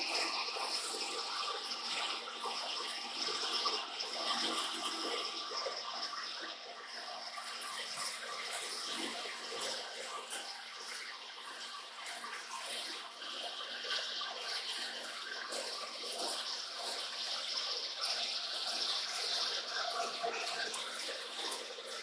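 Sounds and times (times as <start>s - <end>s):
coolant splashing and hissing: 0.0s - 22.0s.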